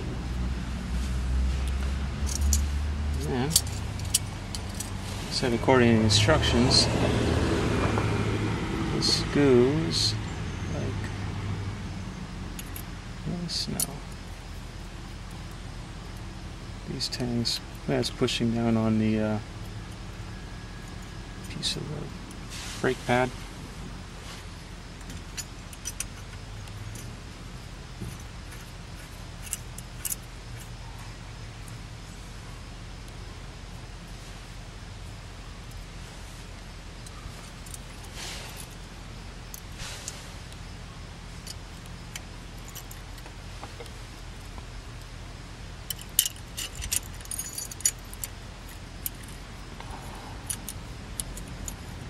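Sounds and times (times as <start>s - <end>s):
steady low hum: 0.0s - 52.0s
light metallic clicks and clinks: 1.6s - 5.5s, 12.5s - 16.3s, 16.9s - 20.0s, 25.0s - 31.8s, 41.3s - 45.1s, 45.8s - 52.0s
metal clip clicking and clinking: 1.7s - 5.0s, 25.1s - 27.1s, 45.9s - 49.4s, 50.4s - 52.0s.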